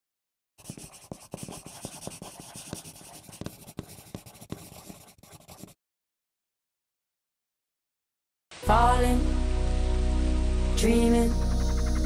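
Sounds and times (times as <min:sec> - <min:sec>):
pen tapping: 0:00.6 - 0:05.7
pen scratching on paper: 0:00.6 - 0:05.8.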